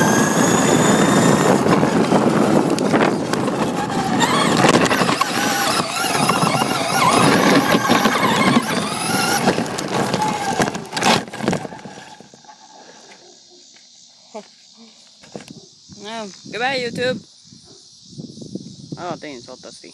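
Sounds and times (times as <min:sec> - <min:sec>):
electric motor whining: 0:00.0 - 0:12.5
wheels rumbling on ground: 0:00.0 - 0:13.2.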